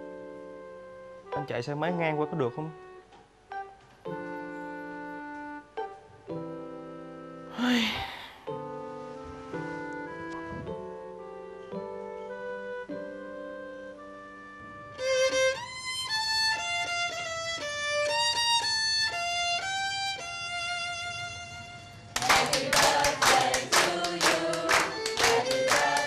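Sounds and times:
violin-like lead melody: 0:00.0 - 0:07.8, 0:08.5 - 0:22.2, 0:23.9 - 0:26.0
sharp rhythmic strokes: 0:22.2 - 0:26.0.

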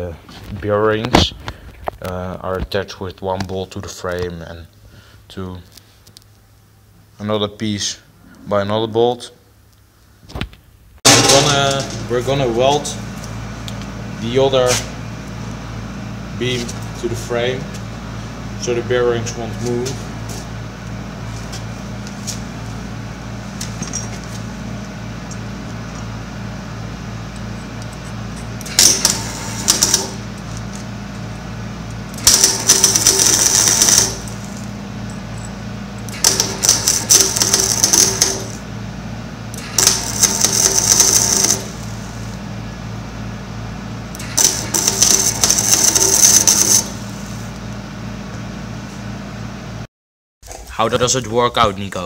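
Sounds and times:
welding arc crackle: 0:11.0 - 0:14.4, 0:28.6 - 0:30.8, 0:32.1 - 0:34.8, 0:36.1 - 0:38.7, 0:39.6 - 0:42.4, 0:44.1 - 0:47.5.

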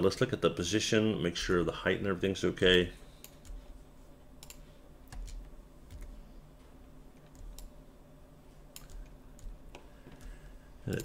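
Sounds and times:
low steady hum: 0:00.0 - 0:11.0
computer mouse and keyboard clicks: 0:04.4 - 0:06.2, 0:07.2 - 0:07.8, 0:08.7 - 0:11.0.

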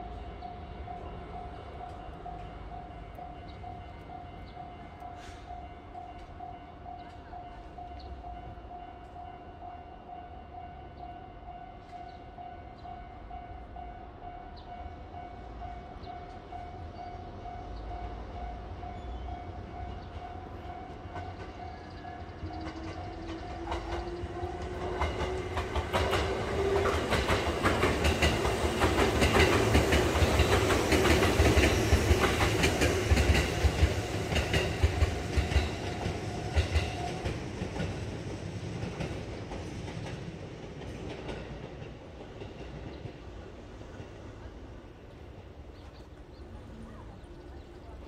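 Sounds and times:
train wheels clacking: 0:19.8 - 0:44.4.

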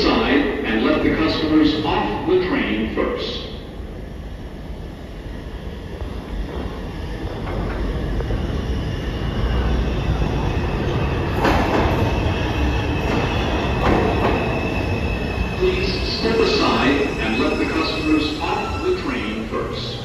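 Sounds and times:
subway train rumble: 0:00.0 - 0:20.0
train clatters: 0:05.9 - 0:20.0.

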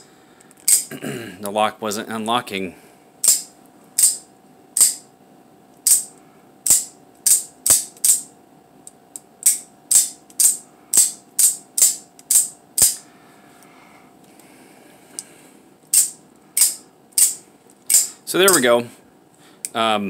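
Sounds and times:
knife blade snapping open and shut: 0:00.7 - 0:00.9, 0:05.9 - 0:06.1, 0:09.4 - 0:13.0, 0:15.9 - 0:18.6.

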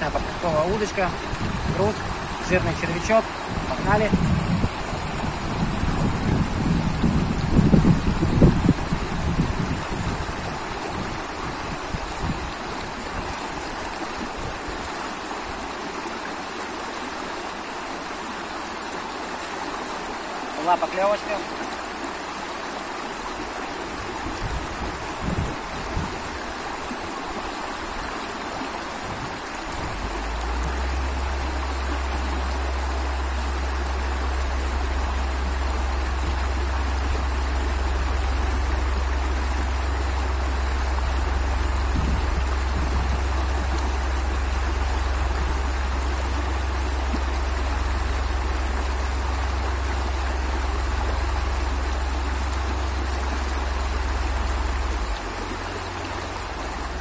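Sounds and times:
deep rumble: 0:00.0 - 0:13.2, 0:29.1 - 0:57.0
river water rushing over rapids: 0:00.0 - 0:57.0.

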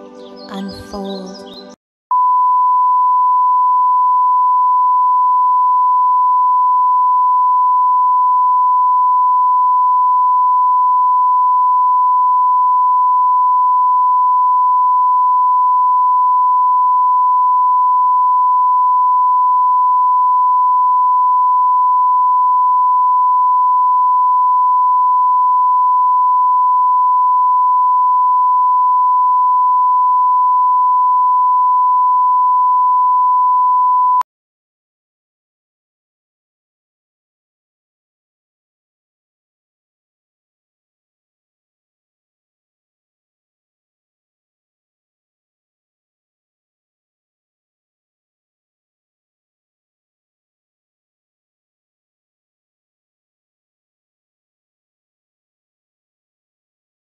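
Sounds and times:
steady high-pitched beep tone: 0:02.1 - 0:34.2.

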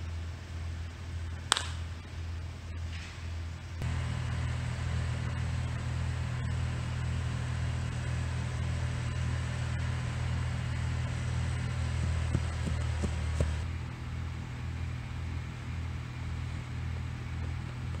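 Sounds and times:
steady low rumble: 0:03.7 - 0:15.2.

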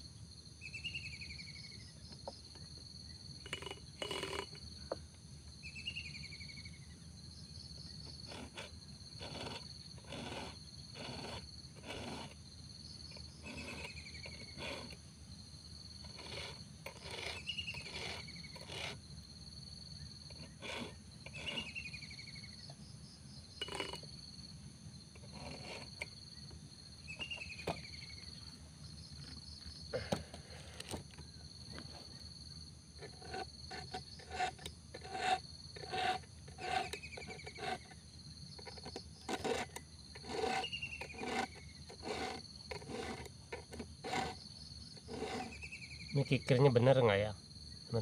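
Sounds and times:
file rasping on chain teeth: 0:03.4 - 0:04.6, 0:08.0 - 0:12.4, 0:13.0 - 0:15.0, 0:16.0 - 0:19.0, 0:20.2 - 0:22.0, 0:23.6 - 0:24.1, 0:25.2 - 0:26.2, 0:33.0 - 0:45.7.

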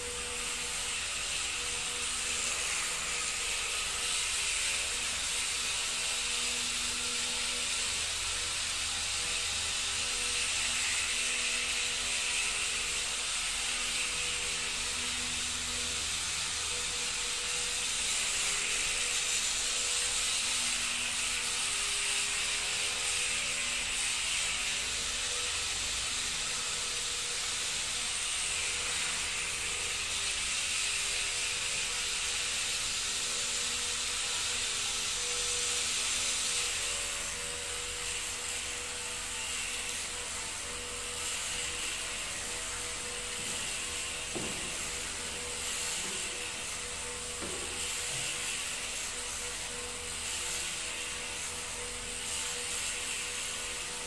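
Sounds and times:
flywheel and motors whirring hiss: 0:00.0 - 0:54.0.

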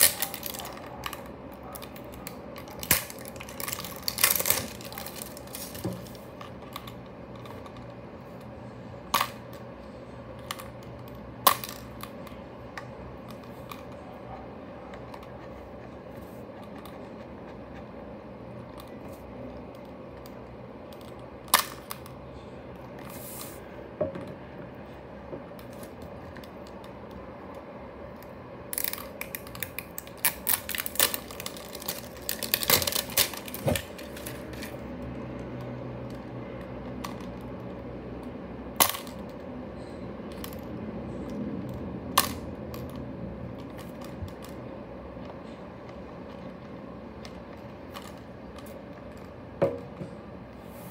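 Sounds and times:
plastic toy clicking and rattling: 0:00.0 - 0:05.8, 0:10.4 - 0:14.0, 0:28.7 - 0:34.8, 0:45.2 - 0:49.3.

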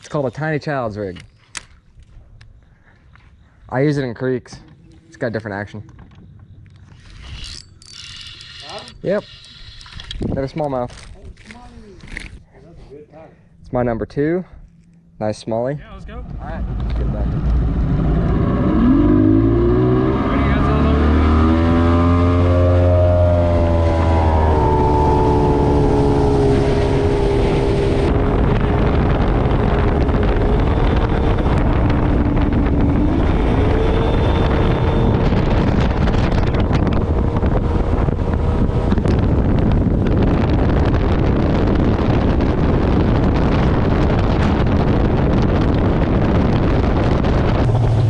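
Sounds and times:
wind on microphone: 0:06.9 - 0:12.5, 0:16.1 - 0:48.0
outboard motor at speed: 0:16.9 - 0:48.0.

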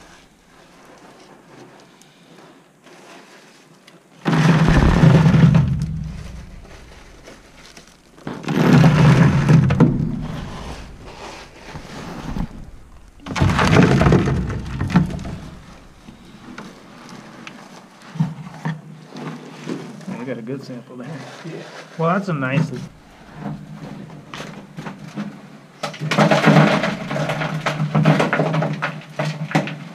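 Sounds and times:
rock rattling and crunching: 0:04.1 - 0:20.1, 0:22.6 - 0:29.9.

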